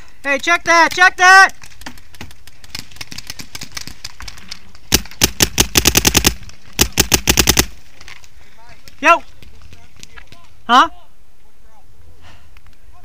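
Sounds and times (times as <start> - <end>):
paintball markers firing: 4.9 - 7.8.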